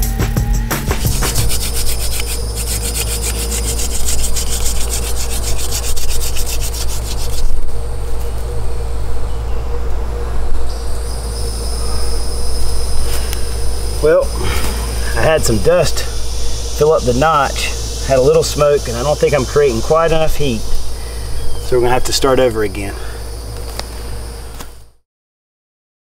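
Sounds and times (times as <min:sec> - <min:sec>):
wood rubbing on wood: 0:00.7 - 0:07.6.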